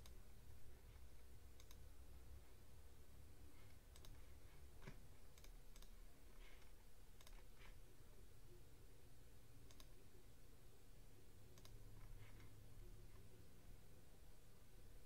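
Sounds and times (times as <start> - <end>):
low steady hum: 0.0 - 15.0
computer mouse clicks: 0.9 - 1.8, 3.6 - 7.8, 9.6 - 10.0, 11.5 - 13.3.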